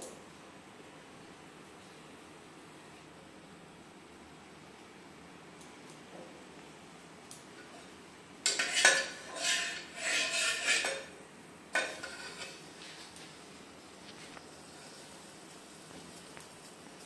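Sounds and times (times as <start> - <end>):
metal spoon scraping and clinking: 8.4 - 11.2, 11.8 - 12.7.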